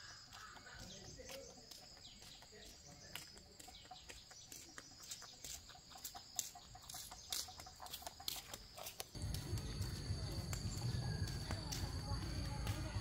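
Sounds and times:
chickens clucking: 3.6 - 9.0.

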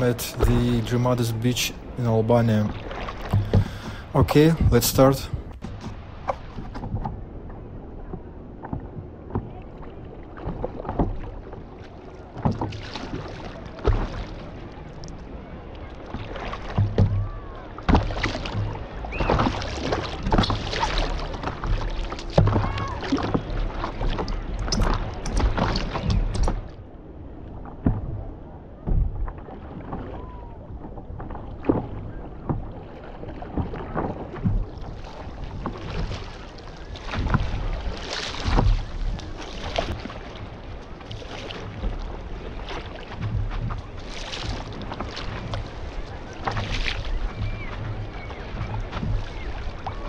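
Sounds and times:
paddle strokes in water: 0.0 - 50.0
water splashes: 0.0 - 50.0
wind rumbling on microphone: 0.0 - 50.0.

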